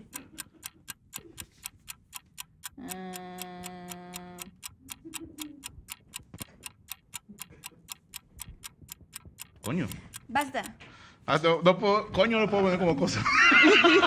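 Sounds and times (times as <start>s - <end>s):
fast clock ticking: 0.0s - 10.8s.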